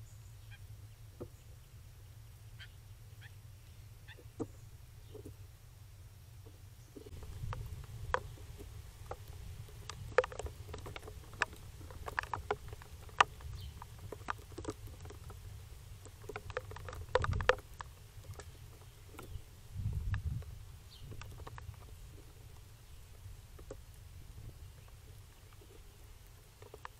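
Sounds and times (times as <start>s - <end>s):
squirrel clicks and taps: 6.4s - 26.9s
low rumbling bump on camera: 19.2s - 21.9s.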